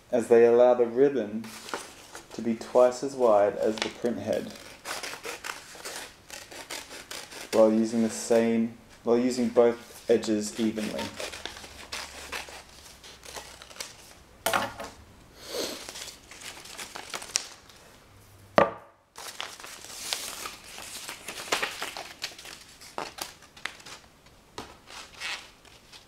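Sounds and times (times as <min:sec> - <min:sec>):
paper strips rustling and crinkling: 0:01.4 - 0:08.2, 0:09.2 - 0:14.2, 0:15.8 - 0:18.0, 0:19.2 - 0:26.0.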